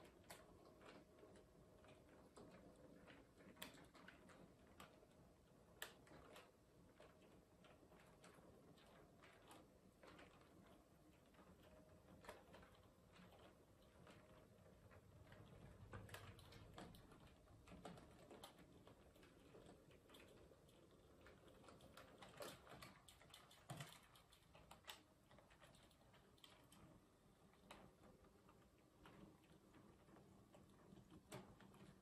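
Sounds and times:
faint low motor hum: 0.0 - 32.0.

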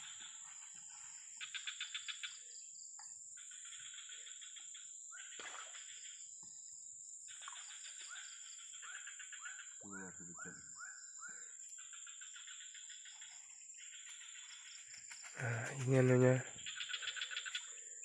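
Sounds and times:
insects high whine: 7.3 - 18.0.

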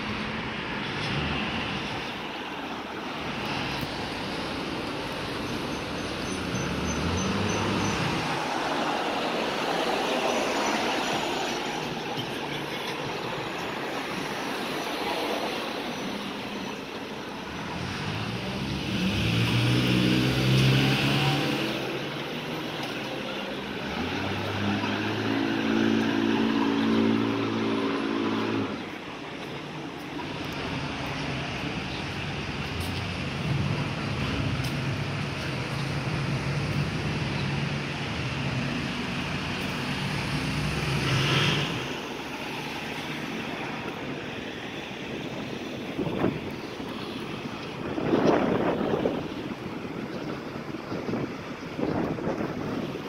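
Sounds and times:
cars driving past: 0.0 - 53.0.

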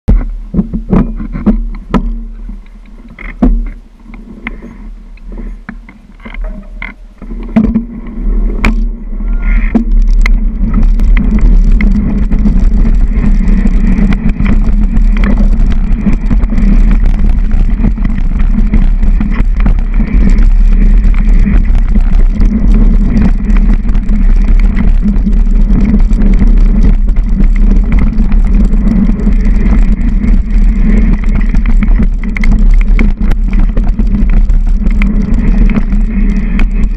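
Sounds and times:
bike clicks and knocks: 0.1 - 36.9
bike rattling over ground: 0.1 - 36.9
wind rushing on microphone: 0.1 - 36.9.

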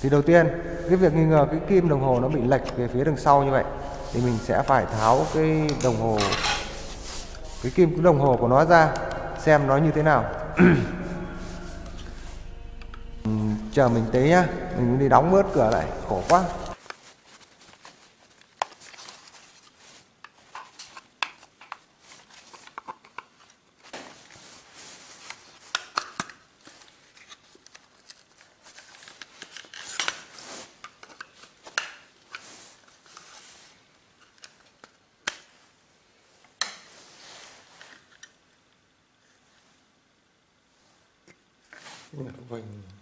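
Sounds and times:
plastic parts clicking and scraping: 17.8 - 24.4, 25.2 - 33.5, 34.2 - 35.5, 37.8 - 38.4.

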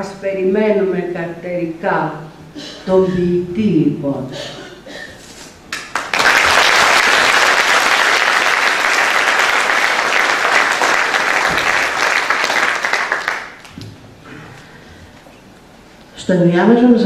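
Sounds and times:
audience applauding: 5.7 - 13.8.

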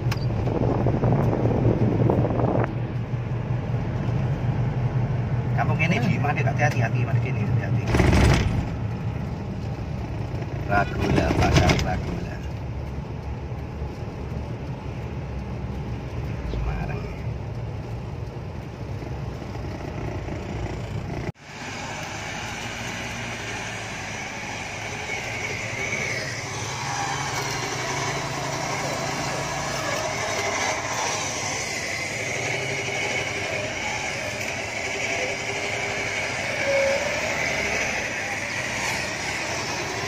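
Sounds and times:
car interior rumble: 0.0 - 21.4
off-road vehicle engines running: 0.0 - 40.0.

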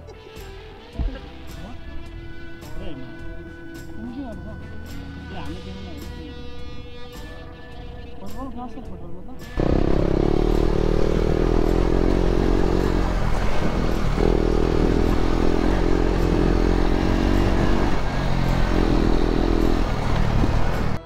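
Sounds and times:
motorcycle engine running: 9.5 - 21.0.

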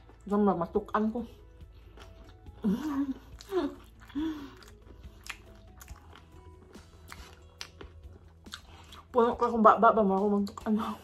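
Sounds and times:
wet chewing mouth clicks: 3.3 - 9.1.

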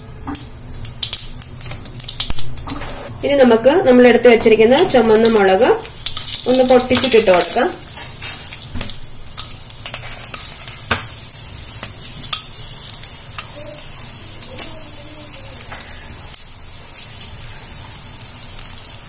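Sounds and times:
hot oil sizzling in a pan: 0.0 - 19.0
mustard seeds crackling and popping: 0.4 - 3.0, 4.3 - 19.0.

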